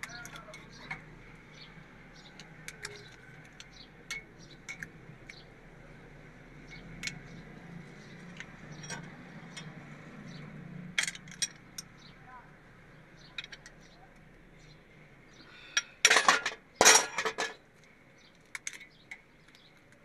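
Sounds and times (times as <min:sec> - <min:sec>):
metal tools clinking on engine: 0:00.0 - 0:01.1, 0:02.2 - 0:05.4, 0:06.7 - 0:07.4, 0:08.0 - 0:12.1, 0:15.7 - 0:17.6.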